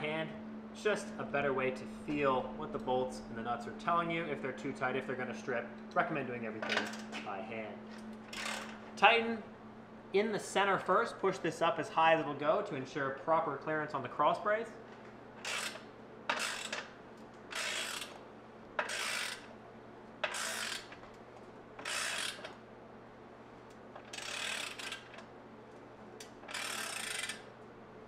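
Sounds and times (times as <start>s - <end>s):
ratchet wrench clicking: 8.3s - 8.8s, 15.4s - 16.9s, 17.5s - 18.2s, 18.8s - 19.5s, 20.2s - 21.0s, 21.8s - 22.6s, 24.0s - 25.2s, 26.4s - 27.5s.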